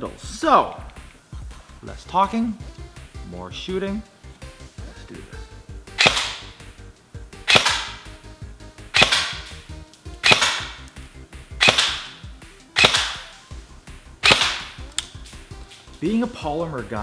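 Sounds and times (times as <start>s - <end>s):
airsoft gun shots: 6.0s - 6.6s, 7.4s - 8.1s, 8.9s - 9.6s, 10.2s - 10.9s, 11.5s - 12.2s, 12.8s - 13.4s, 14.2s - 14.9s.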